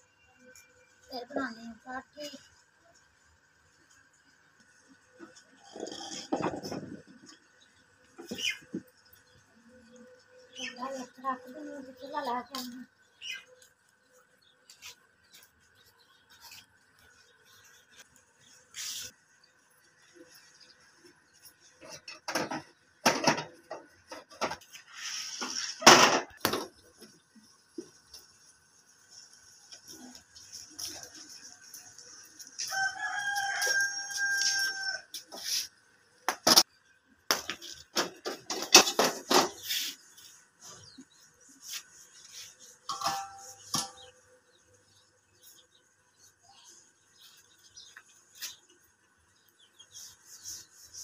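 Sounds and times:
scrape or rustle: 18.7s - 19.2s, 24.6s - 26.2s, 29.0s - 35.8s, 38.3s - 44.2s, 46.6s - 48.7s, 49.7s - 51.0s
rooster crowing: 32.6s - 35.2s.

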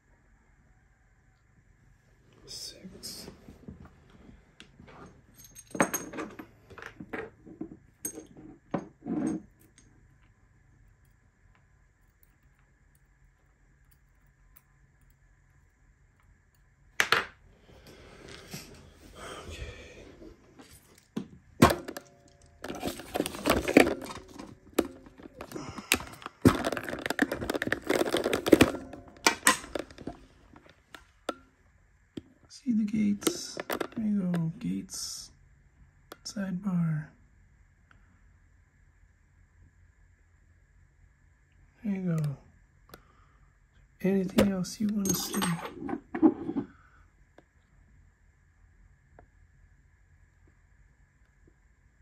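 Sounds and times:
dull handling noise: 20.3s - 31.5s
rubbing and rustling: 22.6s - 30.6s.

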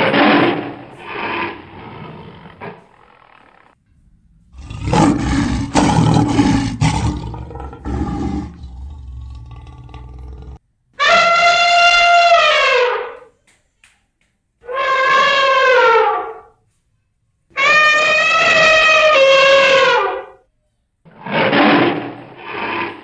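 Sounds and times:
lion roaring: 0.0s - 2.9s, 4.5s - 10.6s
elephant trumpeting: 4.6s - 13.2s, 14.6s - 16.5s, 17.6s - 20.4s, 21.2s - 23.0s.

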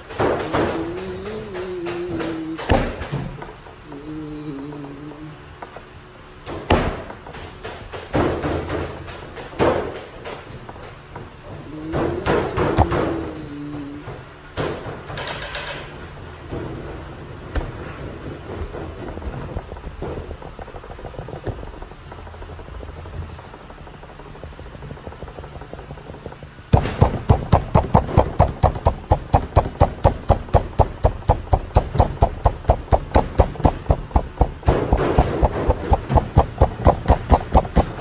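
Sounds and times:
steady low hum: 0.0s - 38.0s
palm slapping bread dough: 19.6s - 38.0s.

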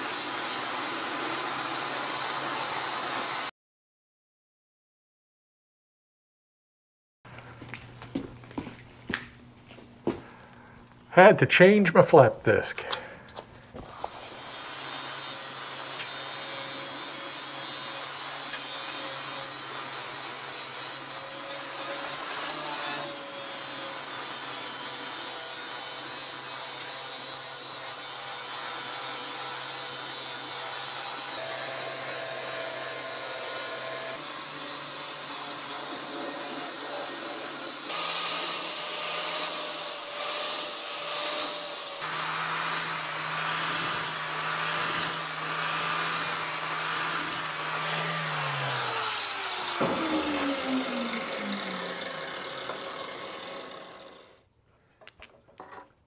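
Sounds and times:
angle grinder grinding steel: 0.0s - 3.5s, 13.8s - 54.4s.

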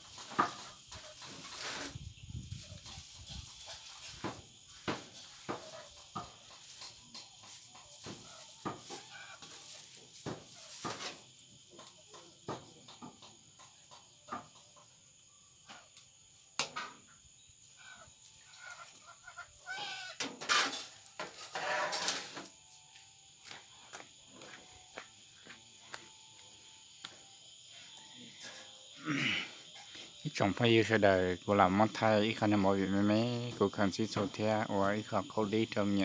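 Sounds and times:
high-pitched insect drone: 0.0s - 36.0s
animal calls: 17.8s - 20.2s.

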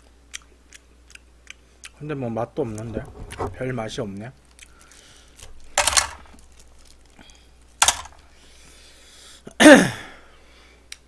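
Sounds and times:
man coughing: 9.5s - 10.2s
voiced grunt: 9.5s - 10.2s.

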